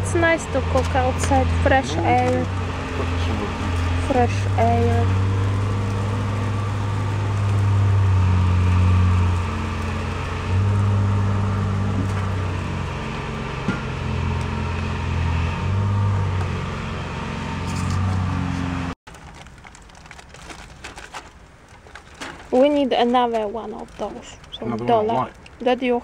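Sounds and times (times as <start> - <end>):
low hum: 0.0 - 19.5.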